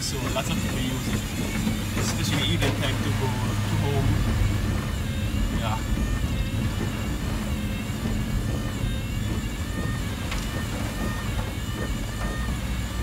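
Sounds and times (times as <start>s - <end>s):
engine and road rumble: 0.0s - 13.0s
rain on windscreen: 0.0s - 13.0s.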